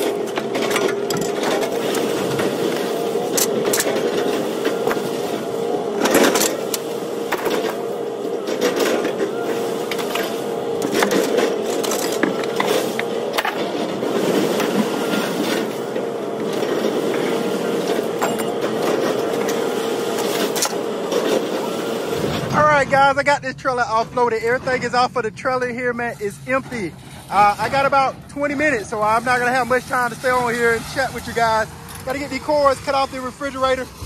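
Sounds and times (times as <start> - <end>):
scrap metal clanks and knocks: 0.0 - 5.4, 6.0 - 21.6
machinery drone: 0.0 - 34.0.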